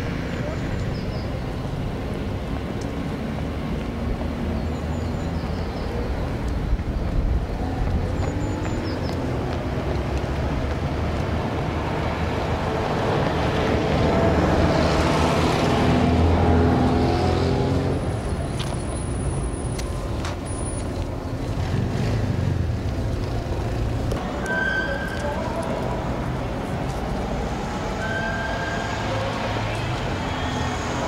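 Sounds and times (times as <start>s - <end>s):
road noise: 0.0s - 31.0s
vehicle engine passing: 8.1s - 19.7s, 21.2s - 24.2s.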